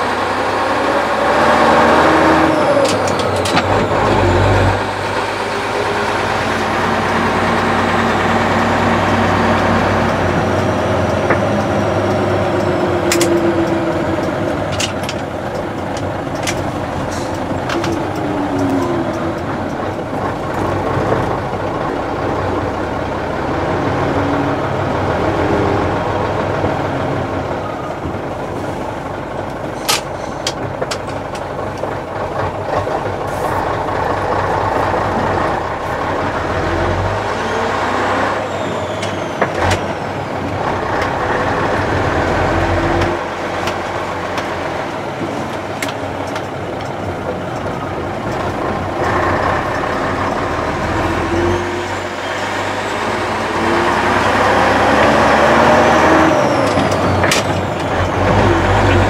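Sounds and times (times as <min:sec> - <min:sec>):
diesel truck engine running: 0:00.0 - 0:59.0
sharp clicks and knocks: 0:02.8 - 0:04.1, 0:10.1 - 0:21.8, 0:29.5 - 0:33.2, 0:42.9 - 0:50.4, 0:56.6 - 0:59.0.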